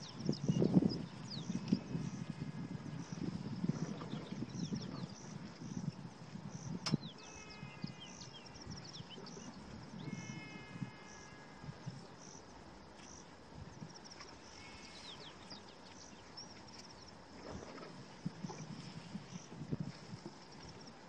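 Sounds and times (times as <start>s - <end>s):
birds and insects calling: 0.0s - 21.0s.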